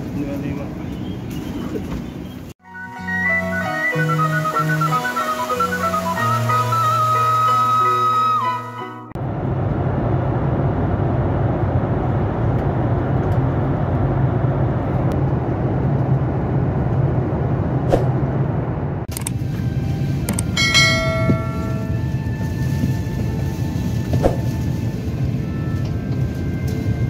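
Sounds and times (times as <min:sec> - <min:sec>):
music: 0:02.6 - 0:09.2, 0:19.3 - 0:27.0
jet airliner cabin noise: 0:04.0 - 0:27.0.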